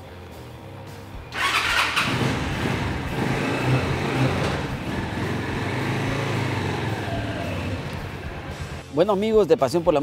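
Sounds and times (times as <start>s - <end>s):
motorcycle engine revving: 1.3s - 8.8s.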